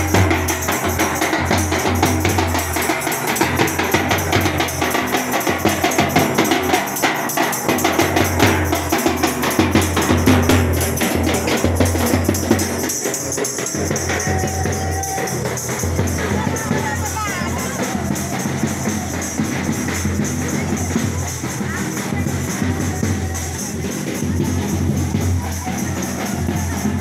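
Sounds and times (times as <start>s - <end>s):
side drum beaten with sticks: 0.0s - 27.0s
bass drum: 7.6s - 27.0s.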